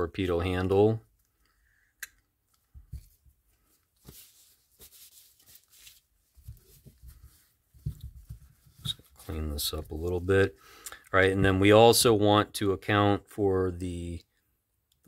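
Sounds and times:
cloth rubbing over reel: 4.0 - 10.2.

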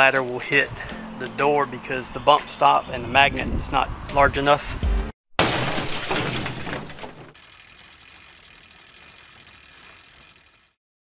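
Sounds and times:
glass shattering: 5.4 - 7.4
fast ratcheting clicks: 7.4 - 10.8.

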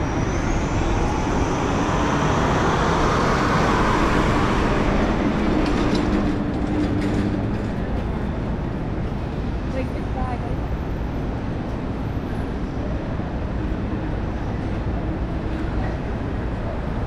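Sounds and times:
large vehicle passing: 0.0 - 9.8.

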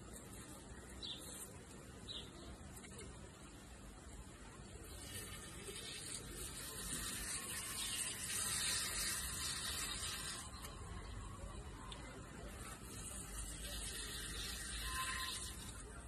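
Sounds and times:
lawn sprinkler spraying water: 4.8 - 10.8, 11.9 - 16.0.

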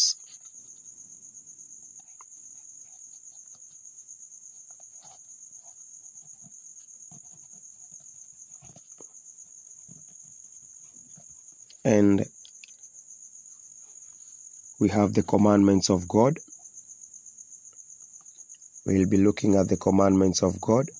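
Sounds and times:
cricket trilling: 0.0 - 20.9.

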